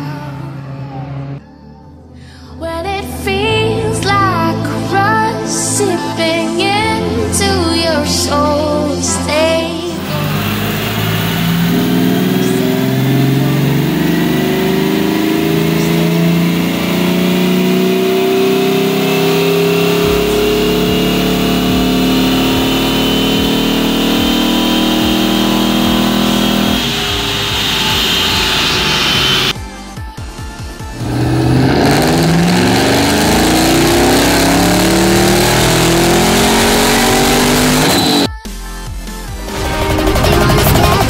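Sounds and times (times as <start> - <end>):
car engine at full throttle: 9.9 - 29.6, 30.8 - 38.3, 39.5 - 41.0.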